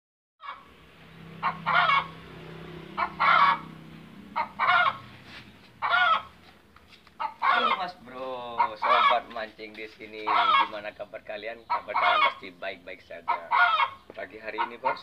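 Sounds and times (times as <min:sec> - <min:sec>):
chicken squawking: 0:00.4 - 0:00.7, 0:01.4 - 0:02.2, 0:02.9 - 0:06.4, 0:07.1 - 0:09.4, 0:10.1 - 0:10.9, 0:11.6 - 0:15.0.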